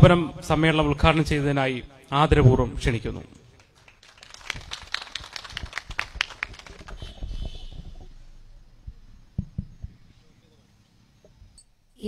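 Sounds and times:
audience hand claps: 0:03.6 - 0:07.8
low thump: 0:07.2 - 0:10.1.

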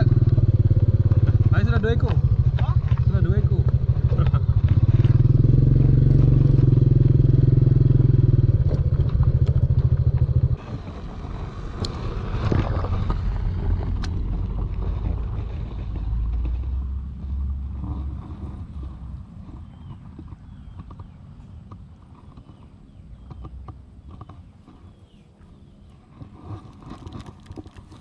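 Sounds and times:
motorcycle engine running: 0:00.0 - 0:25.8
rustling: 0:24.0 - 0:28.0.

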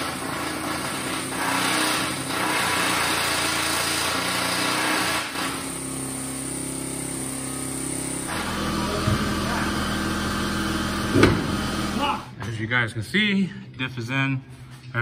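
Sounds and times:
machine motor running: 0:00.0 - 0:12.3.

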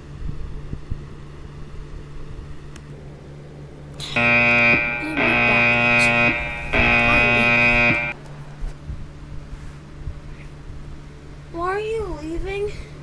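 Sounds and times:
low steady hum: 0:00.0 - 0:13.0
pulsing electronic buzzing tone: 0:04.0 - 0:08.2.

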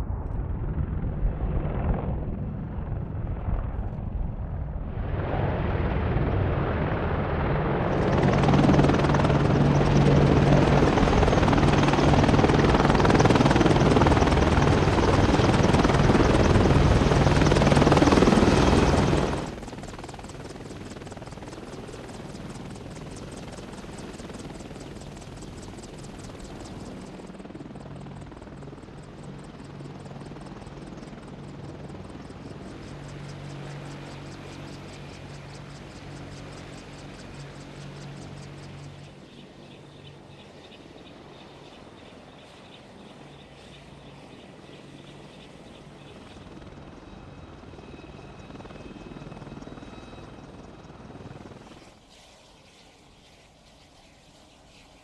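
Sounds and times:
helicopter rotors and engines: 0:00.0 - 0:55.0.

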